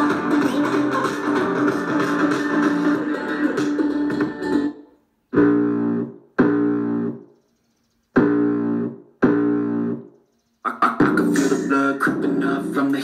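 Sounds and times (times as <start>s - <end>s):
music through small speaker: 0.0s - 7.2s, 8.2s - 10.1s, 10.7s - 13.0s
guitar-like chords: 0.0s - 7.3s, 8.2s - 10.1s.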